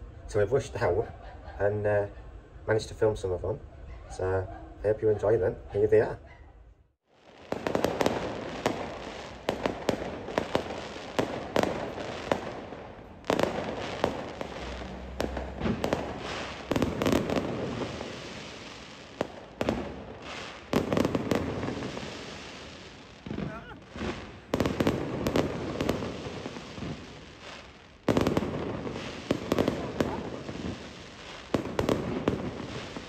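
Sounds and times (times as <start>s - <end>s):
fireworks bangs and crackles: 7.1s - 33.0s.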